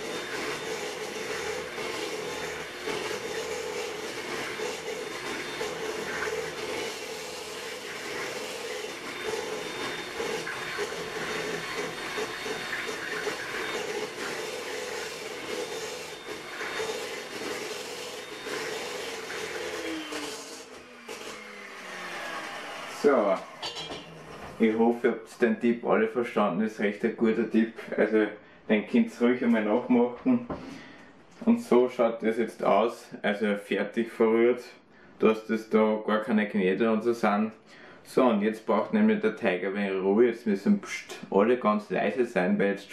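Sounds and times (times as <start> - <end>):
beaters whisking batter: 0.0 - 24.8
electric hand mixer whine: 0.0 - 25.0.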